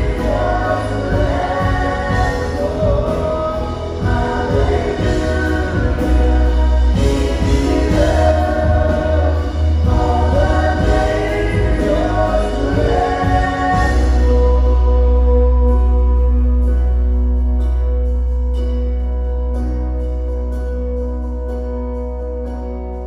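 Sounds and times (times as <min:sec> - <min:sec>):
group of voices singing: 0:00.0 - 0:16.5
drum kit: 0:00.0 - 0:23.0.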